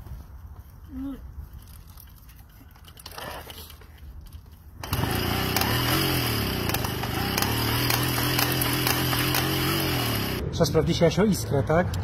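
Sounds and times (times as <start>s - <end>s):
moped engine turning over: 4.8s - 10.4s.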